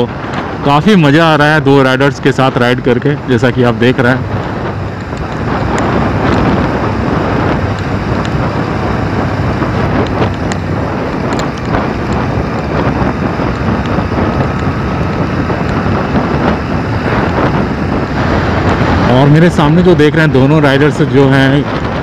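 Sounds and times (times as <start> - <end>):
motorcycle engine: 0.0 - 22.0
road noise: 0.0 - 22.0
wind over microphone: 0.0 - 22.0.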